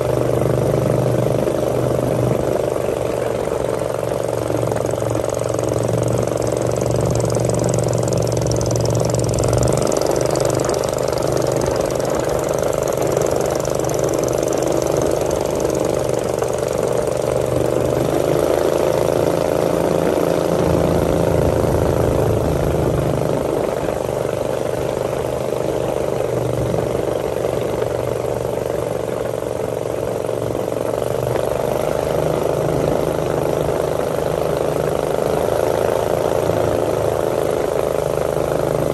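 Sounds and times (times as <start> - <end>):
motorboat engine drone: 0.0 - 38.9.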